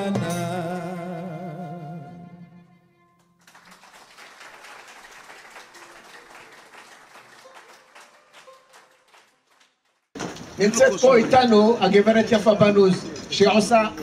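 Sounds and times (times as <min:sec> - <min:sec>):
group applauding: 0:03.4 - 0:10.6.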